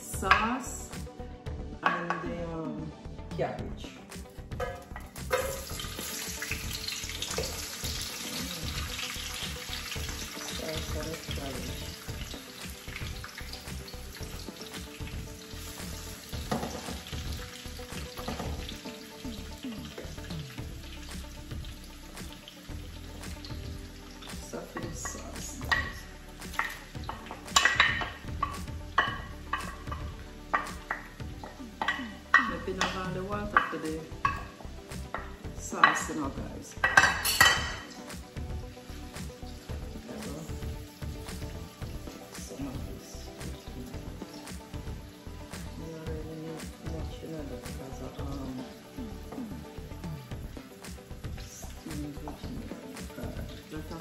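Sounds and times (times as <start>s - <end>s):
vegetables sizzling in a frying pan: 4.2s - 54.0s
spoon clinking on pots: 4.6s - 5.9s, 26.6s - 33.0s, 36.8s - 37.9s.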